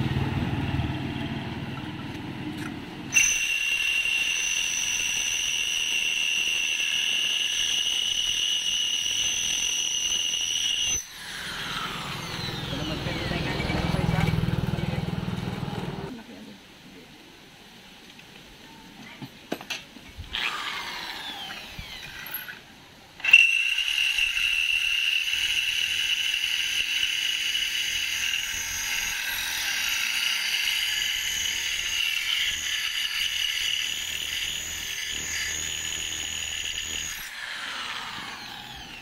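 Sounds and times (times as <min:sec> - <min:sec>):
electric drill drilling metal: 0:03.1 - 0:14.3, 0:20.3 - 0:22.6, 0:23.2 - 0:39.0.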